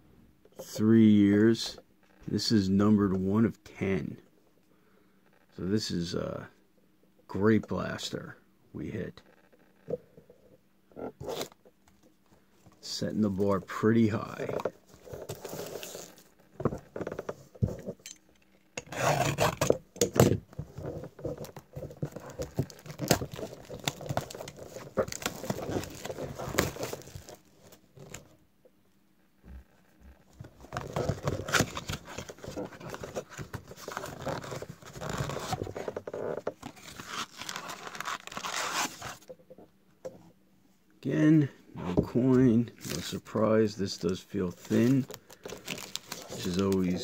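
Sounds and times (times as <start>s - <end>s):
cardboard tearing and scraping: 11.2s - 11.6s, 14.5s - 16.8s, 18.8s - 28.2s, 30.6s - 39.3s, 44.5s - 47.0s
wrappers crinkling: 20.8s - 28.3s, 36.6s - 39.2s, 44.5s - 47.0s.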